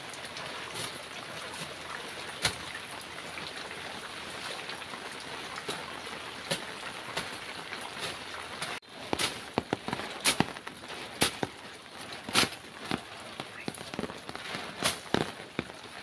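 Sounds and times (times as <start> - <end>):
rain in foliage: 0.0 - 16.0
sharp ticks and cracks: 9.0 - 16.0.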